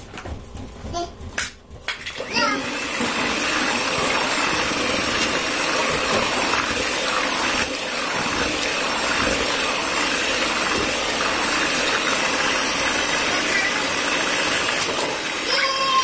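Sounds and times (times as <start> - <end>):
beaters whisking wet batter: 2.1 - 16.0
electric hand mixer whining: 2.2 - 16.0.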